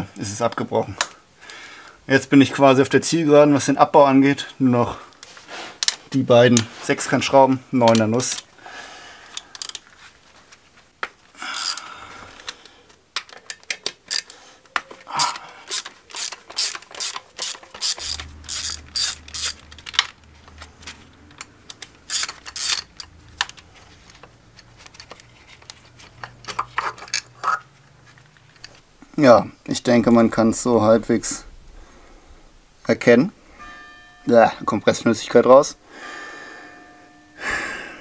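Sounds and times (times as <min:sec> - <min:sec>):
hand ratchet clicking: 0:09.3 - 0:09.8, 0:11.5 - 0:14.4, 0:15.1 - 0:23.7.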